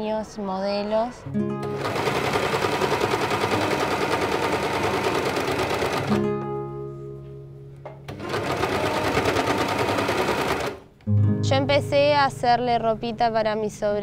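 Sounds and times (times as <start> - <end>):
background music: 0.0 - 14.0
serger sewing machine chattering: 1.7 - 6.1, 8.1 - 10.8.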